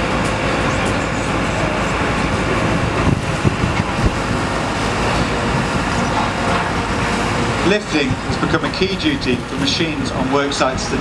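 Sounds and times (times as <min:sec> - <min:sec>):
diesel engine running: 0:00.0 - 0:11.0
hydraulics working: 0:00.0 - 0:11.0.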